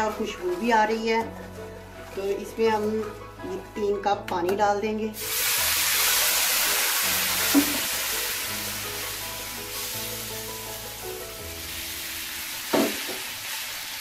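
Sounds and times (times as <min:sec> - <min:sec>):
semolina sizzling in ghee: 0:05.2 - 0:14.0.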